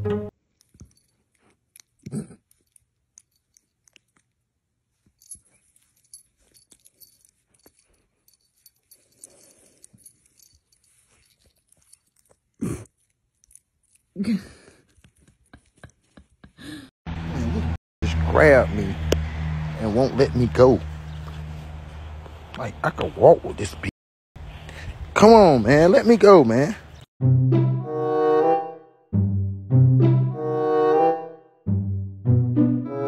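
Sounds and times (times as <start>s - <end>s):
puppy chewing: 0.4s - 4.7s.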